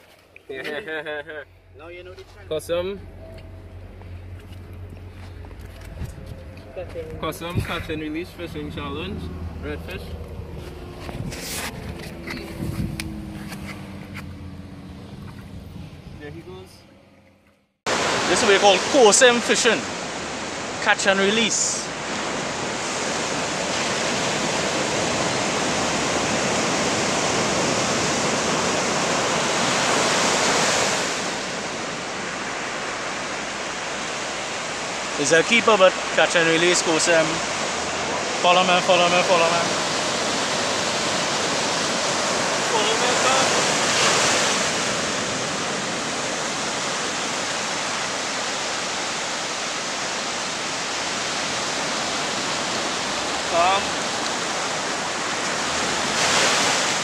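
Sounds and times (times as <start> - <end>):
small waves breaking on beach: 17.9 - 57.0.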